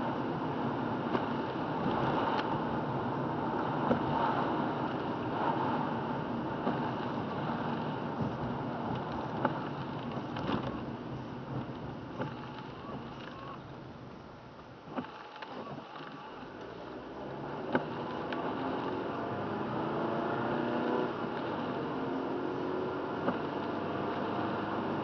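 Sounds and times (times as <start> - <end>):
windshield wipers sweeping: 0.0 - 13.9, 14.8 - 19.8, 20.4 - 22.0, 23.1 - 25.0
rain: 0.0 - 15.3
tyre and engine noise: 0.0 - 25.0.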